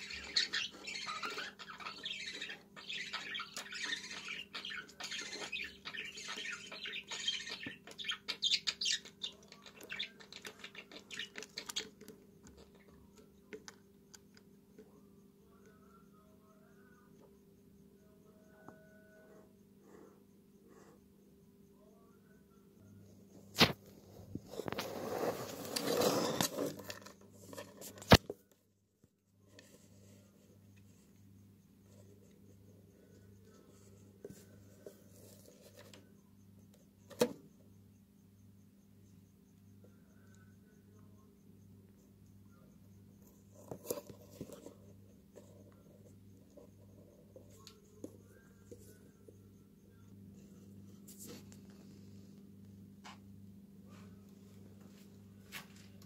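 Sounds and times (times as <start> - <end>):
scraping and rustling: 23.6 - 28.3
scratching and clicking in nest box: 43.2 - 48.8
steady low hum: 44.6 - 56.0.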